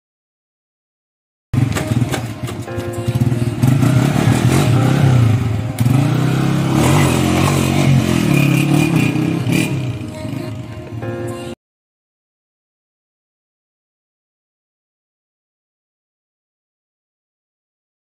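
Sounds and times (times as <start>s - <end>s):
motorcycle engine revving: 1.6s - 10.6s.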